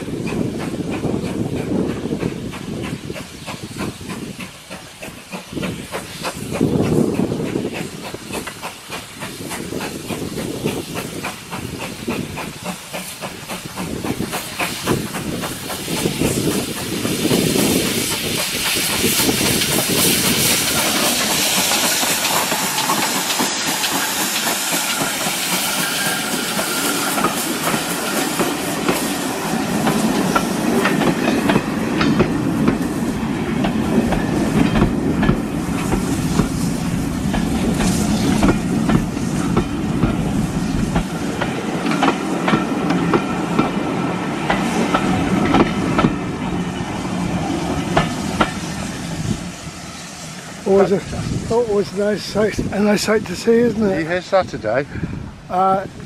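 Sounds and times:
steam hissing: 0.0s - 56.0s
steam locomotive passing: 0.0s - 56.0s
wheels clicking over rail joints: 40.9s - 46.2s.

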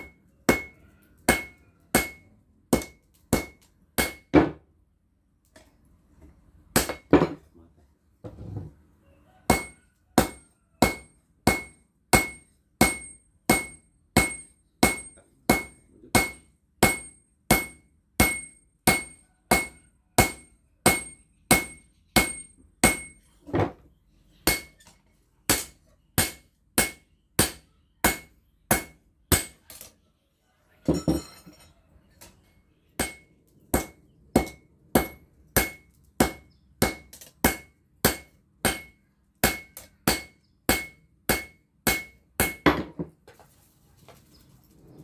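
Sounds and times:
hammer striking metal on anvil: 0.0s - 4.6s, 9.5s - 23.2s, 24.5s - 24.8s, 25.5s - 29.8s, 33.0s - 43.0s.

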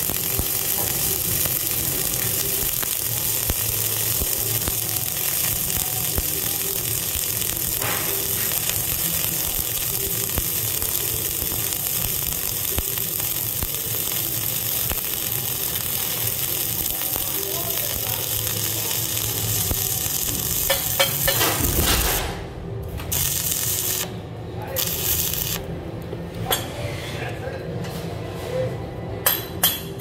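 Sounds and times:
welding spatter pops: 0.0s - 22.4s, 23.0s - 24.1s
welding arc crackling sizzle: 0.0s - 26.0s.

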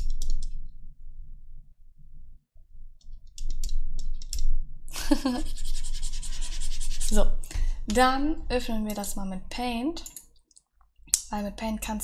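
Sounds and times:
low rumble: 0.0s - 10.0s
stylus clicking on graphics tablet: 8.8s - 9.2s, 10.0s - 11.3s.

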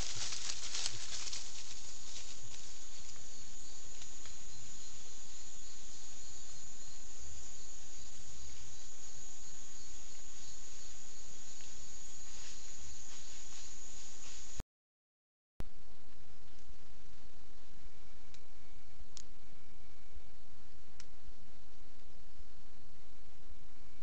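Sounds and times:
background hiss: 0.0s - 14.6s
insect chorus buzzing: 0.0s - 14.6s.

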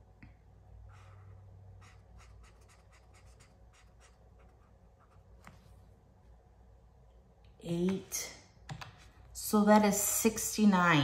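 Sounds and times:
pen scratching on paper: 0.9s - 5.6s.

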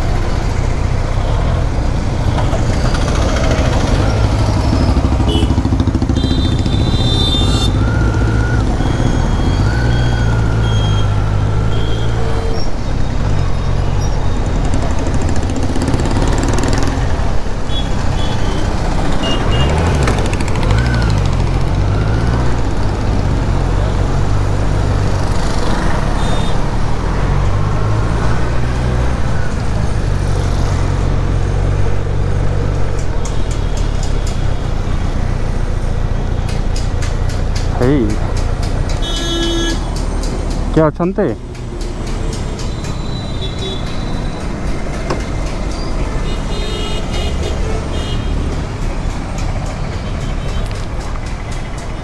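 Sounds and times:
motorcycle engine revving: 2.5s - 12.2s, 14.4s - 17.4s, 18.0s - 33.2s.

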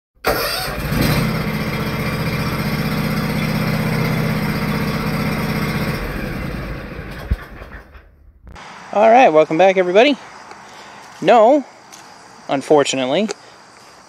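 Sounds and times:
engine starting and idling: 0.2s - 8.4s.

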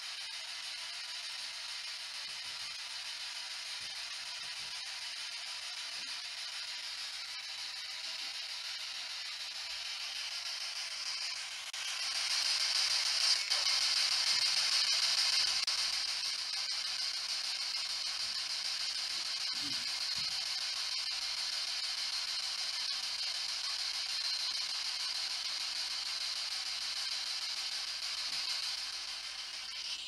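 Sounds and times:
radio static hiss: 19.3s - 20.3s.

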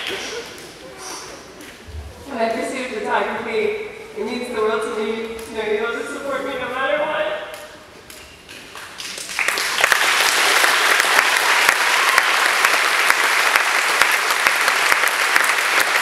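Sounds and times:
audience applauding: 0.0s - 0.5s, 8.7s - 16.0s.

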